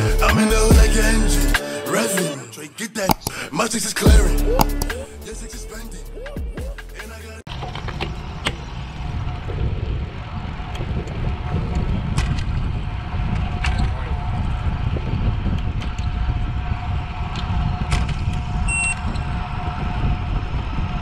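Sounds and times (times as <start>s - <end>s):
wind rushing over microphone: 7.6s - 21.0s
bicycle clicks: 14.6s - 19.3s
short electronic beep: 18.7s - 19.0s.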